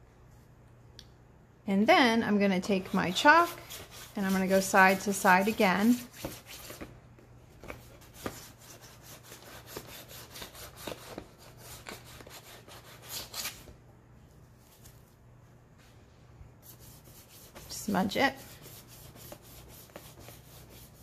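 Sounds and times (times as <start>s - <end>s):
chalk scratching on board: 2.7s - 6.9s, 7.8s - 13.6s, 16.6s - 21.0s.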